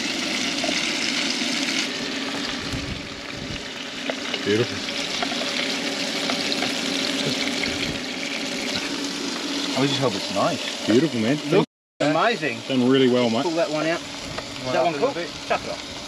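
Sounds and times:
fish fillets sizzling in a pan: 0.0 - 16.0
metal tongs scraping a pan: 4.0 - 7.3.

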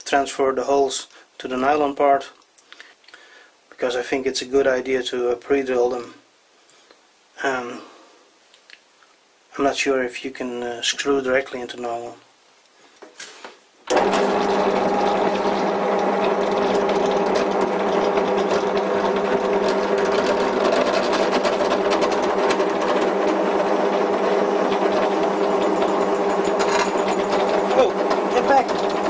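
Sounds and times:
drill bit drilling into plastic: 13.9 - 29.0
drill press motor humming: 13.9 - 29.0.

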